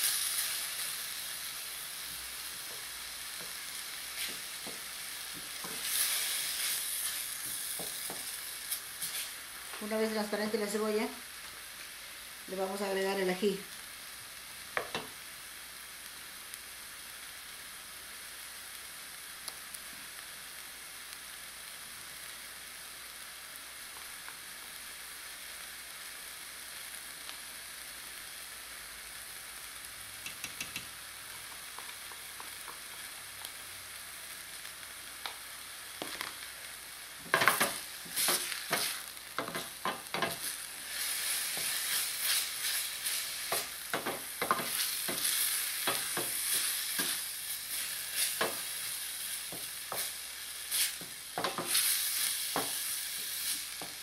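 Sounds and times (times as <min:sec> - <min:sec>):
onions sizzling in oil: 0:00.0 - 0:54.0
wooden spoon scraping a pot: 0:37.3 - 0:48.6.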